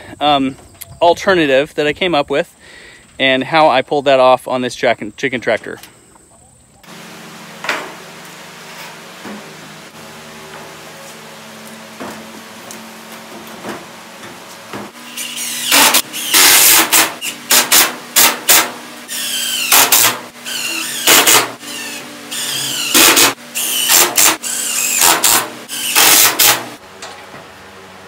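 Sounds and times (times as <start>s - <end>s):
power drill whining: 15.0s - 17.6s, 19.1s - 26.6s.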